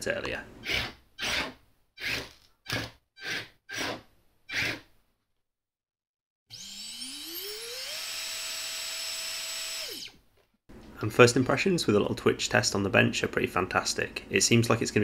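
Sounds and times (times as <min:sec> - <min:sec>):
saw motor high whine: 0:06.5 - 0:10.2
small electric motors whirring: 0:06.5 - 0:10.2.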